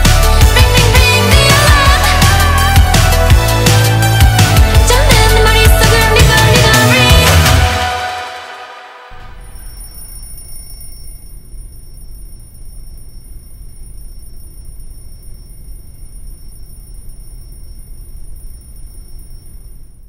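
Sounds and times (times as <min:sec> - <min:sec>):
faint high-pitched whining tones: 0:09.1 - 0:20.0.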